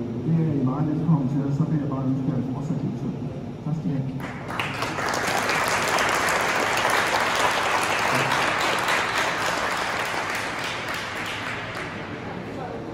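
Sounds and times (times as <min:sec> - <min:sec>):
audience applauding: 0:04.2 - 0:12.4.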